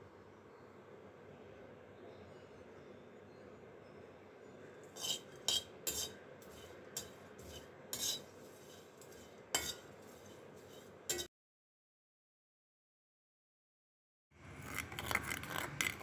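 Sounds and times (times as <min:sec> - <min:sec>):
wooden spatula scraping clay pot: 0:05.0 - 0:11.3, 0:14.6 - 0:16.0.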